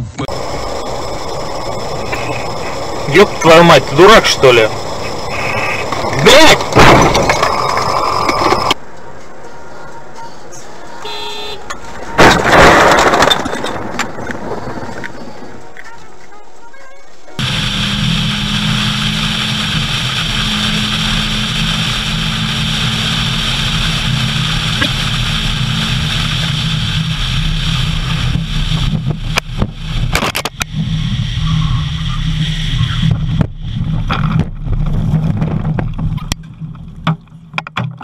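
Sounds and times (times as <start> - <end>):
car engine and road noise: 0.0 - 38.0
car crashing through bushes: 12.2 - 15.0.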